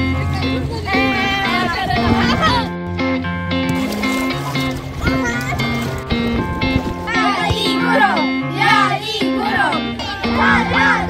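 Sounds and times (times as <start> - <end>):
bass line: 0.0 - 11.0.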